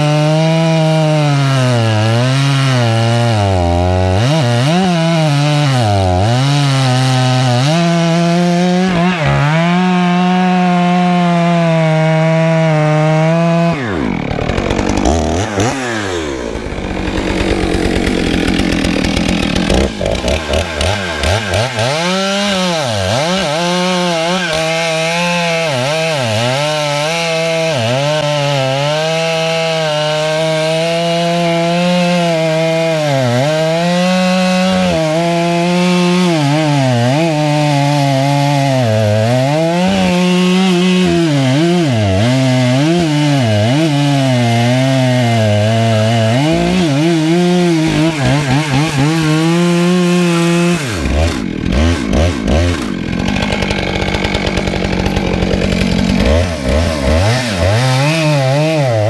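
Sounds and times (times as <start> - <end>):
chainsaw cutting wood: 0.0 - 59.0.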